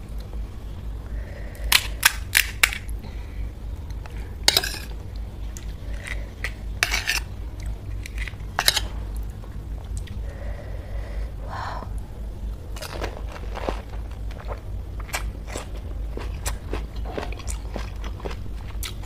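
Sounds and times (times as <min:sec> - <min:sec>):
eating sounds: 0:12.8 - 0:19.0.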